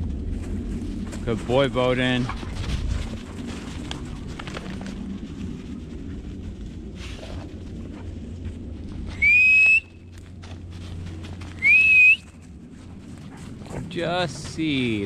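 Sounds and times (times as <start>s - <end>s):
loud whistle: 9.1s - 10.0s, 11.6s - 12.3s.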